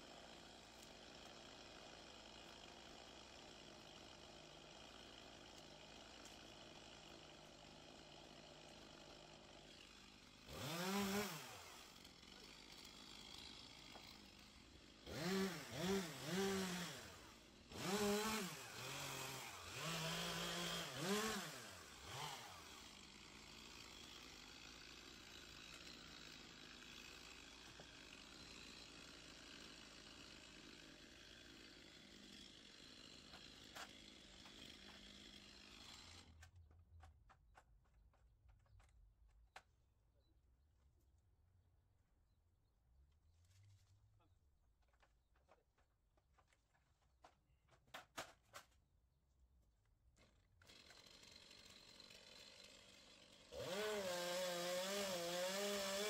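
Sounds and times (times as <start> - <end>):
chainsaw revving: 0.2 - 36.3, 50.7 - 56.0.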